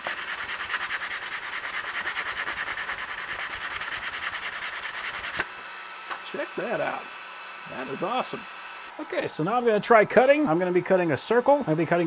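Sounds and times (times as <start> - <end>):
sandpaper scratching on wood: 0.0 - 5.4.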